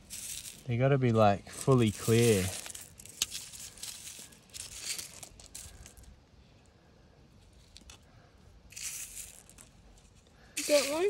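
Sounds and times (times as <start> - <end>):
fingers raking through pebbles: 0.0 - 6.1, 10.6 - 11.0.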